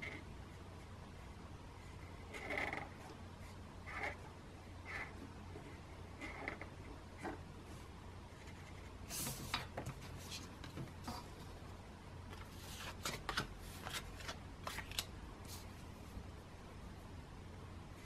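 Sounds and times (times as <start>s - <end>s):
faint low hum: 0.0s - 18.0s
pen scratching on paper: 1.8s - 4.2s, 4.9s - 7.4s.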